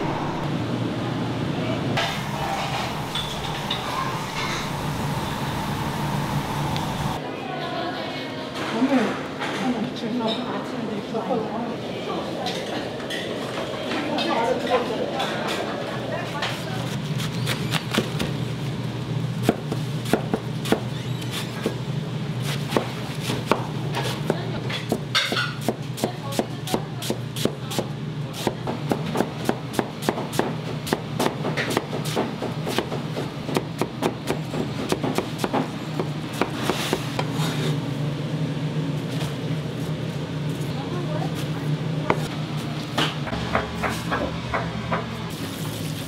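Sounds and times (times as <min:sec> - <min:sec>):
steady low hum: 0:00.0 - 0:07.2.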